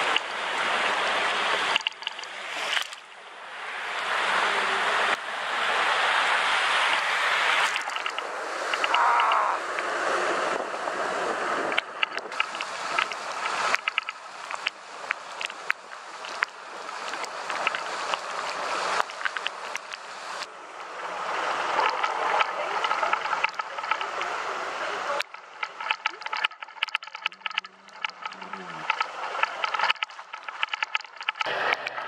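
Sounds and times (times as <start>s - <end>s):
raindrops ticking on camera: 0.0s - 3.2s, 7.5s - 9.9s, 11.7s - 20.5s, 21.7s - 32.0s
tyres splashing through water: 0.0s - 32.0s.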